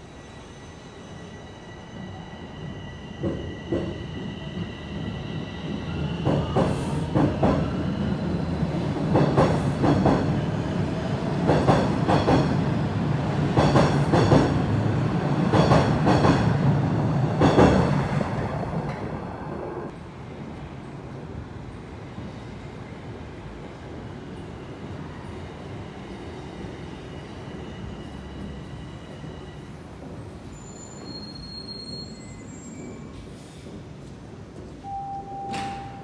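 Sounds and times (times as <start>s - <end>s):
subway train rumbling past: 0.0s - 36.0s
train wheels clacking: 13.5s - 14.6s, 15.5s - 16.6s.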